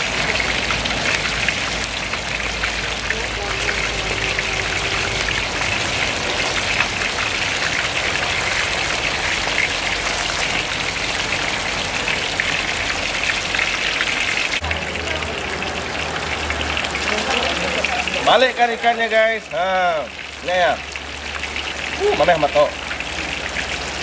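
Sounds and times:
fish sizzling in hot oil: 0.0 - 24.0.

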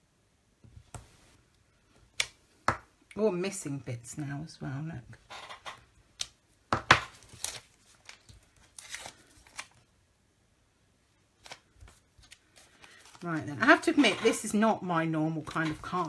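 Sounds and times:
paper peeling and ripping: 7.2 - 9.8.

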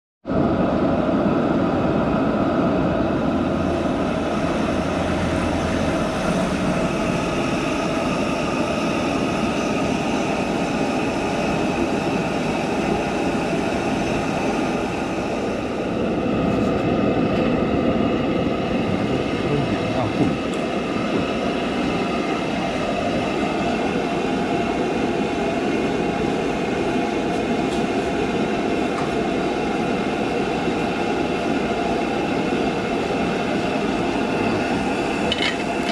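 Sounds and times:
gas burner rushing: 33.5 - 35.9.

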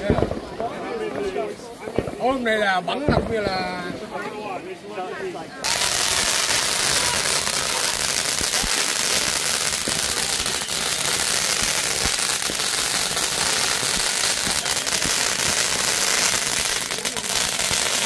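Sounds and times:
fireworks hissing: 5.6 - 18.0.

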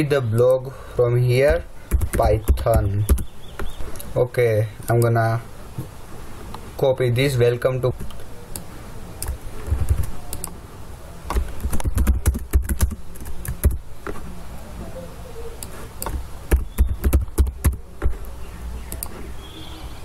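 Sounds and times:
keyboard typing: 1.5 - 4.1, 8.0 - 10.6, 11.3 - 14.2, 15.6 - 18.3.

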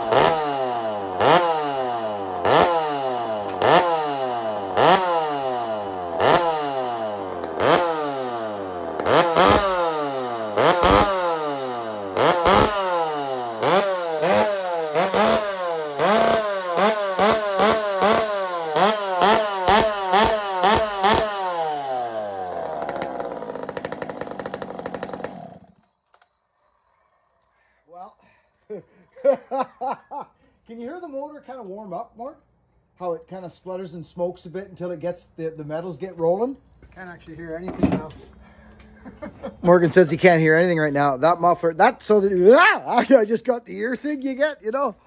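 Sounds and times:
chainsaw revving and idling: 0.0 - 26.3.

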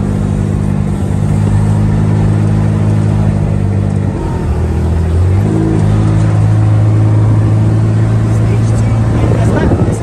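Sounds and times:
utility cart engine running: 0.0 - 10.0.

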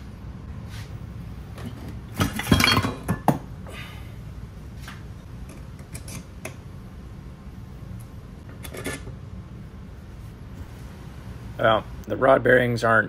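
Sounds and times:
metal engine parts clanking: 1.6 - 3.4.

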